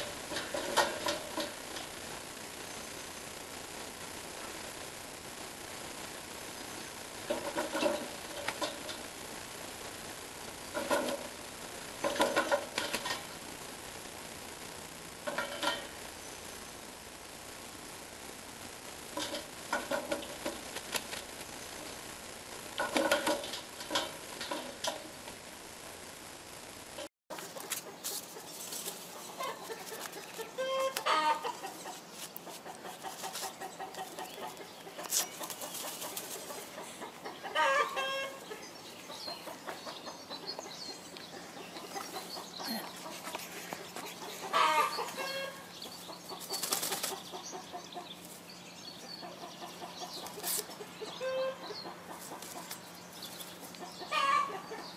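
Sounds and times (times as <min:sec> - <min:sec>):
bird calling harsh notes: 0:29.3 - 0:31.8, 0:50.4 - 0:51.8.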